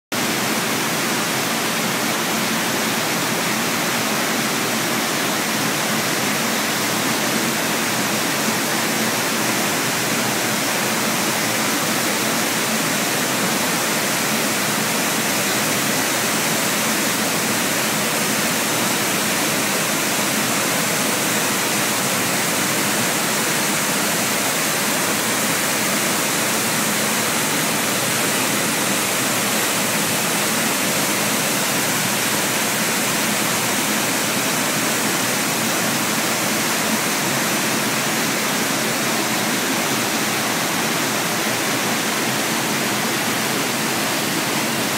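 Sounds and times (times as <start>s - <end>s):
waterfall rushing over rocks: 0.1s - 44.9s.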